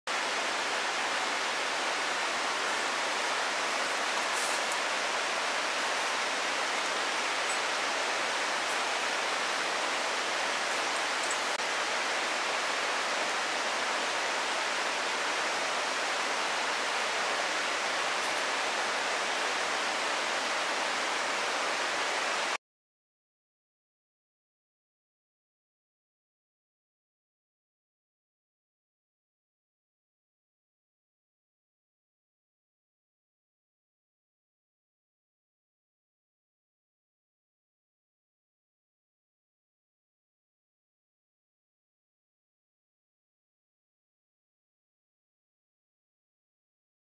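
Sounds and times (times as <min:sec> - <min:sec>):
fast-flowing water rushing: 0:00.1 - 0:22.6.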